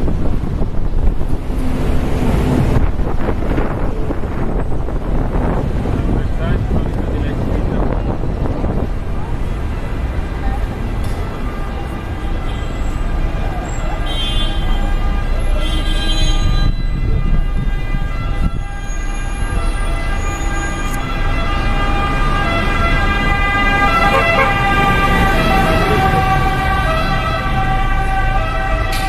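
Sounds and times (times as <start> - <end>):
bus engine: 0.0 - 16.4, 17.0 - 29.0
traffic rumble: 0.0 - 29.0
fire engine siren: 16.2 - 29.0.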